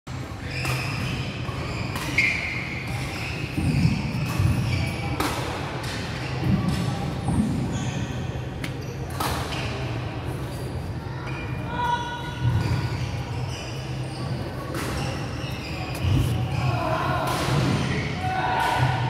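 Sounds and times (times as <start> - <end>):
echoing hubbub of hall: 0.1 - 19.0
shoes squeaking on wooden floor: 12.6 - 16.7.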